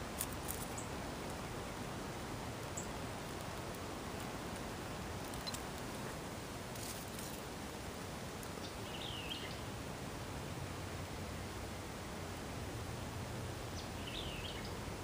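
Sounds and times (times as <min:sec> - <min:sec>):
outdoor background noise: 0:00.0 - 0:15.0
bird chirp: 0:08.6 - 0:09.7, 0:13.7 - 0:14.8.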